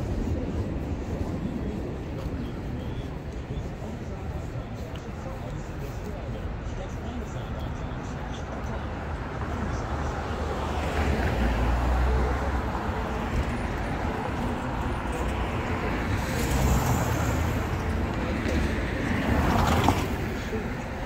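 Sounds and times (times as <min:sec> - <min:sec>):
road noise: 0:00.0 - 0:21.0
vehicle engines rumbling: 0:00.0 - 0:21.0.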